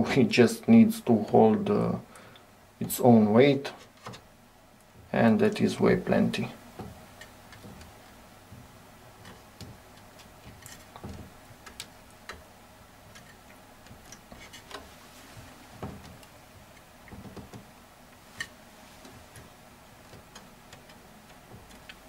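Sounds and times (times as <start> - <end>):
light clicks and taps: 15.8 - 22.0.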